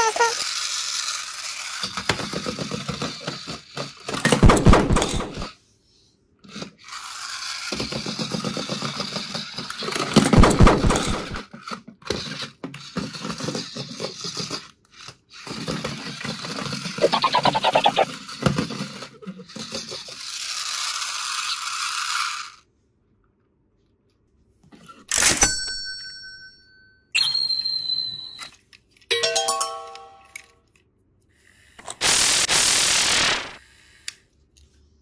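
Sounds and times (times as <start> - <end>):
toy car motor whirring: 0.0 - 4.3, 6.5 - 10.2, 10.9 - 22.7, 31.2 - 32.3, 33.6 - 34.7
plastic wheels clattering on wood: 1.8 - 5.5, 7.7 - 11.5.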